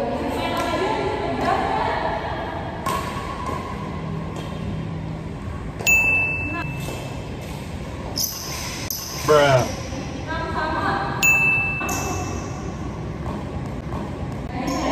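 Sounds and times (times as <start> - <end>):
high-pitched ring: 5.8 - 7.1, 11.2 - 12.8.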